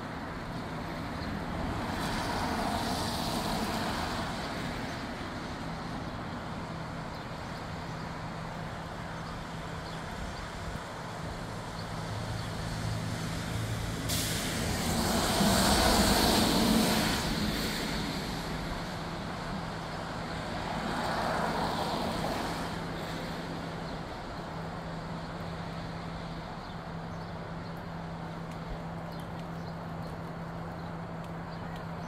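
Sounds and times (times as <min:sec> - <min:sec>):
rain shower hiss: 0:01.7 - 0:05.6, 0:11.6 - 0:24.2.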